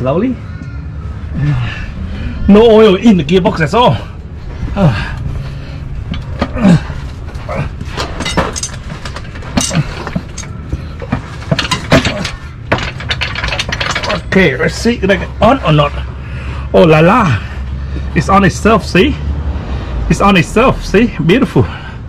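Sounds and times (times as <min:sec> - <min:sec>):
gearbox metal knocks and scrapes: 0:07.2 - 0:14.9.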